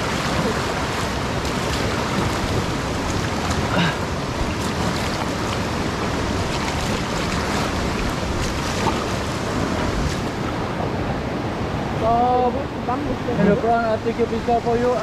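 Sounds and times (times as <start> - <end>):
short water splashes: 0.0 - 10.6
rushing river water: 0.0 - 15.0.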